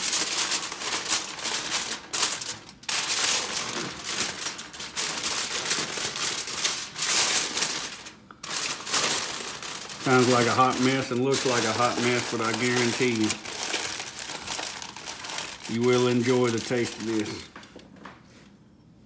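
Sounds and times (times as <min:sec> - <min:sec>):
aluminum foil crinkling: 0:00.0 - 0:18.1.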